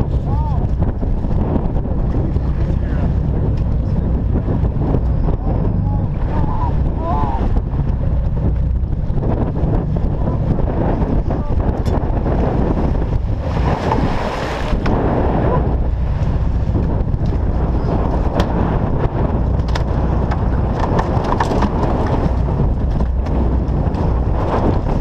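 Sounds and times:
heavy low rumble: 0.0s - 25.0s
wind buffeting microphone: 0.0s - 25.0s
knocks and clatter on deck: 19.6s - 24.0s.

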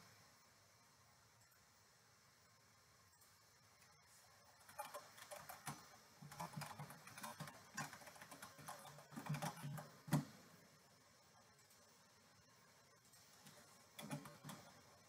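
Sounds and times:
typing on a keyboard: 4.6s - 10.4s, 13.4s - 14.9s.

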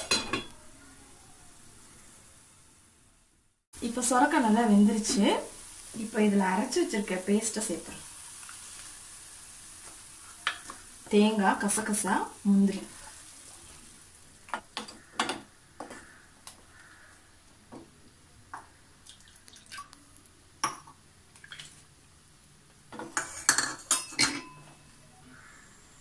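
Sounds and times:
wooden spatula scraping metal pan: 23.0s - 23.9s.

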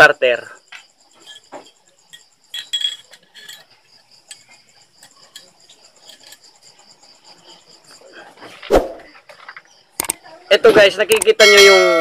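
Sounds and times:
metal parts clinking: 1.1s - 6.8s.

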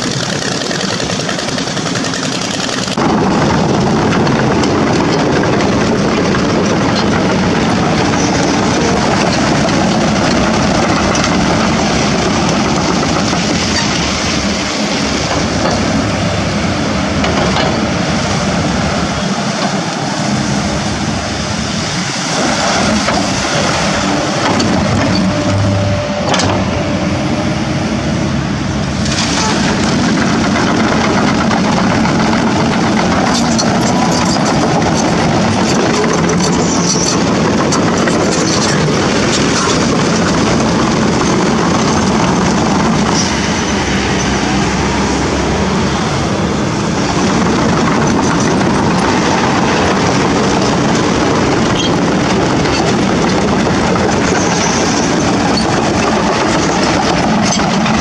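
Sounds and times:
excavator diesel engine under load: 0.0s - 58.0s
steel crawler tracks clanking: 0.0s - 58.0s
scattered knocks: 24.4s - 26.7s, 29.4s - 43.5s.

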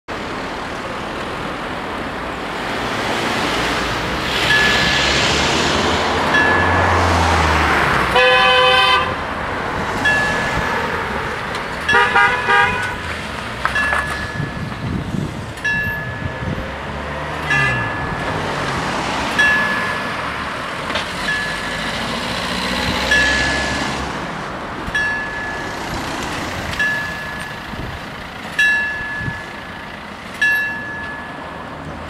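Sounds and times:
cars driving past: 0.1s - 32.0s
thin high tone: 4.3s - 7.0s
car horn toot: 8.1s - 9.2s, 11.9s - 13.0s.

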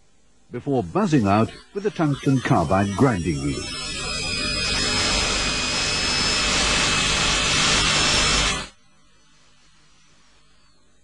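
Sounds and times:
rotary grinder grinding steel: 1.2s - 8.7s.

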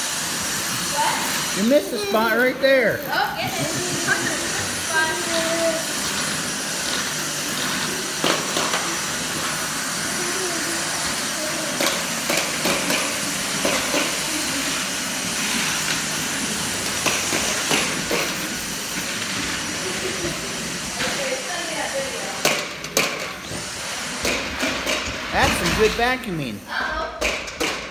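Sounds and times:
stick vacuum running: 0.0s - 27.9s
children's voices: 0.9s - 6.0s, 10.1s - 12.0s.

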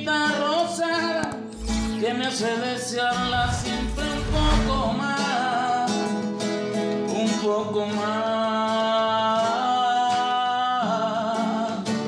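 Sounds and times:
acoustic guitar: 0.0s - 12.0s
man singing love song: 7.1s - 12.0s.

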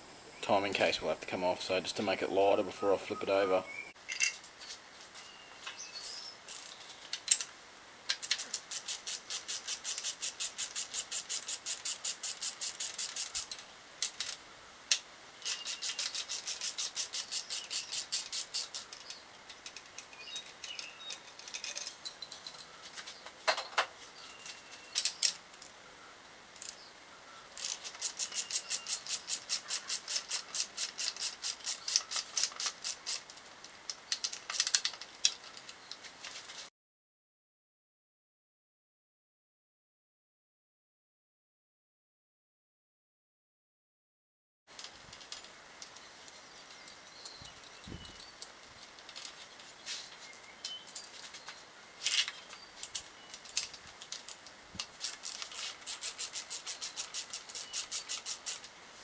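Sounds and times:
metal tool clinks: 4.1s - 4.8s, 13.1s - 14.4s, 20.0s - 22.8s
socket ratchet clicking: 8.1s - 13.5s, 14.9s - 21.5s, 27.6s - 35.0s, 54.8s - 58.7s.

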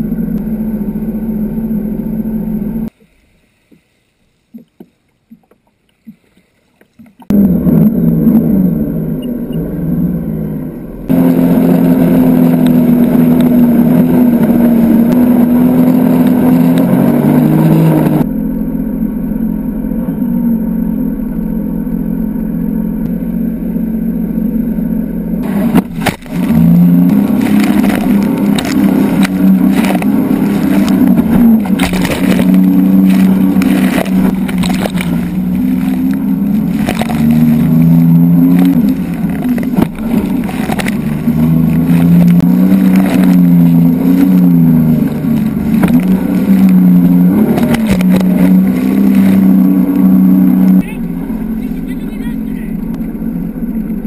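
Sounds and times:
jet ski engine running: 0.0s - 3.7s, 7.2s - 54.0s
water and wind rushing: 25.4s - 50.8s.

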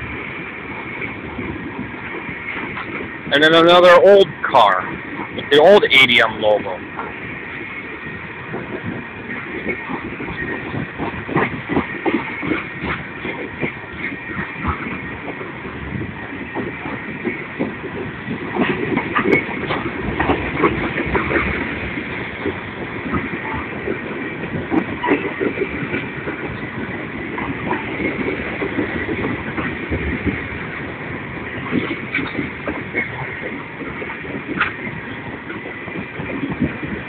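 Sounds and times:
train wheels rumbling on rail: 0.0s - 37.0s.

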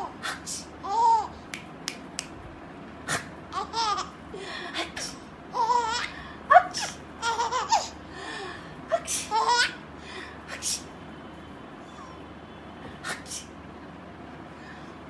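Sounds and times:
baby laughing: 0.8s - 1.4s, 3.5s - 4.2s, 5.5s - 8.0s, 9.0s - 9.8s.

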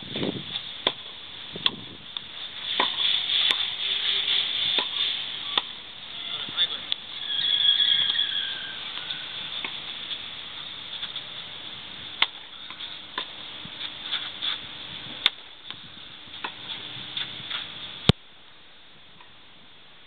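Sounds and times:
steady high hiss: 0.0s - 20.0s
tennis ball struck by racket: 0.8s - 1.8s, 2.7s - 3.7s, 4.7s - 5.0s, 12.2s - 12.4s.

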